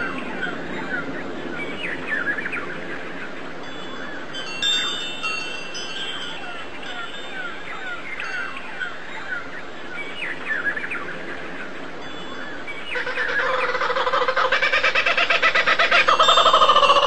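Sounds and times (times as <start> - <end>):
small birds chirping: 0.0 - 17.0
rapidly pulsing bird call: 4.2 - 17.0.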